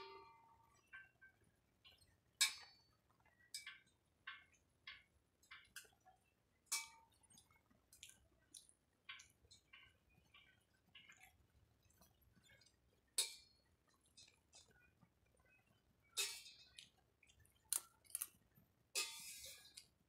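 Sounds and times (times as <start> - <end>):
utensils clinking on metal dishware: 19.0 - 19.8.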